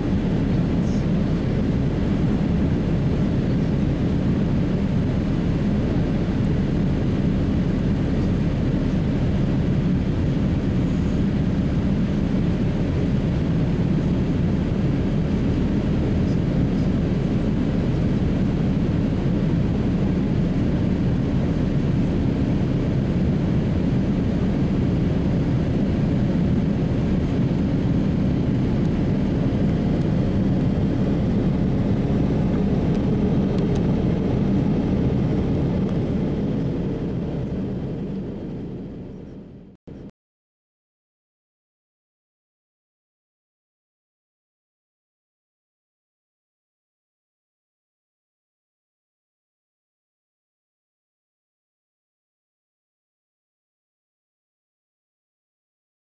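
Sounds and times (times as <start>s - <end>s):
airplane cabin engine rumble: 0.0s - 40.1s.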